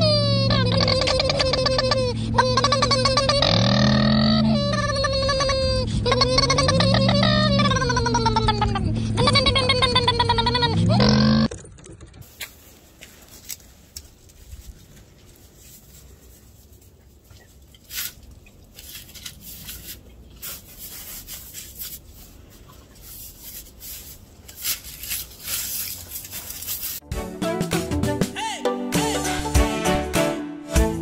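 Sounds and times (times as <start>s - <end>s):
dog crunching in snow: 17.8s - 27.0s.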